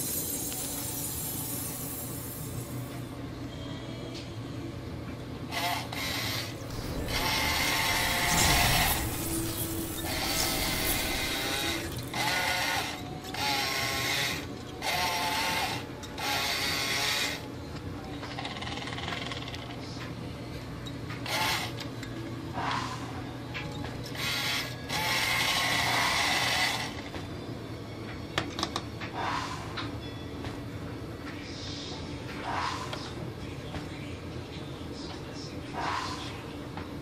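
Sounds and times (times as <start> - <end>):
toy car motor whirring: 0.0 - 3.0, 5.6 - 12.8.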